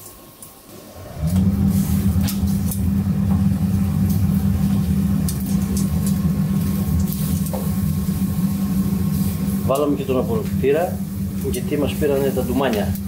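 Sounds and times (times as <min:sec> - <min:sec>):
meat crackling on a grill: 0:00.0 - 0:13.0
extractor fan humming: 0:00.7 - 0:13.0.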